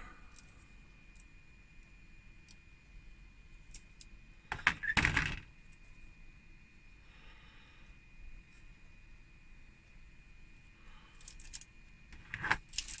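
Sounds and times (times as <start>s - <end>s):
plastic sprues clattering: 12.2s - 13.0s.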